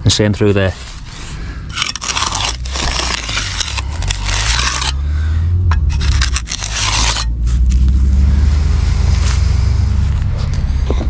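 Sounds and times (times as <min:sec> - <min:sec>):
steady low hum: 0:00.0 - 0:11.0
trowel scraping wet concrete: 0:00.7 - 0:05.0, 0:05.8 - 0:07.9.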